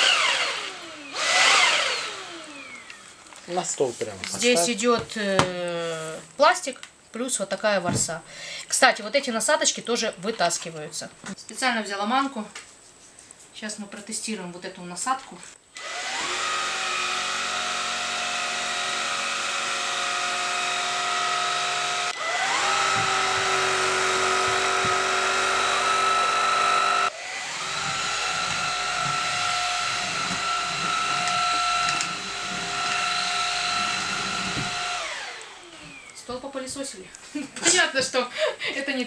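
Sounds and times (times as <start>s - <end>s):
vacuum cleaner motor whine: 0.0s - 4.7s, 15.8s - 36.6s.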